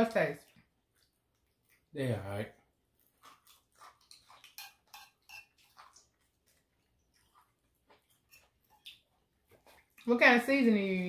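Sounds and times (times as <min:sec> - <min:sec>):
chewing mouth noises: 0:00.4 - 0:10.1.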